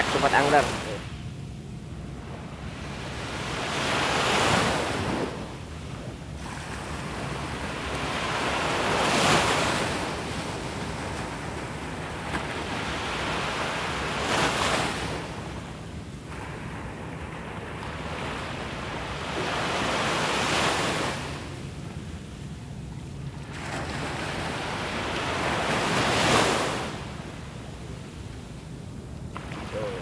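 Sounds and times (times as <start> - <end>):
surf breaking on a beach: 29.3 - 30.0.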